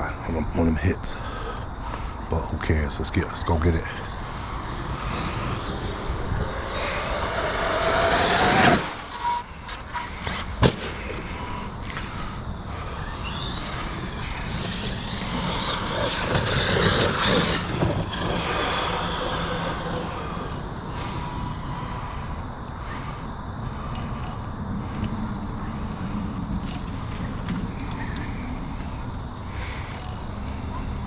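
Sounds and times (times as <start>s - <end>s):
man talking: 0.0s - 1.2s, 2.3s - 4.1s
electric motor whining: 3.3s - 22.4s.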